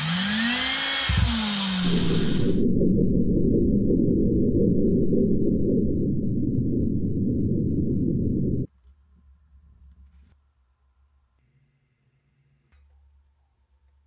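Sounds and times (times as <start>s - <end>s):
deep mechanical whir of gears: 0.1s - 2.6s.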